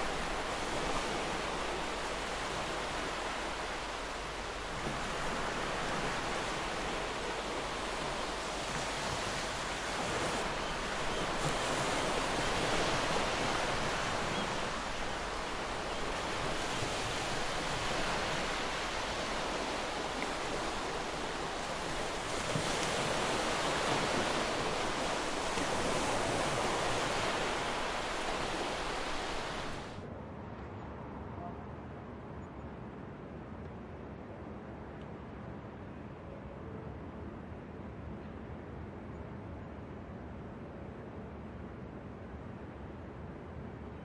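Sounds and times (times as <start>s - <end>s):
sea waves washing ashore: 0.0s - 30.1s.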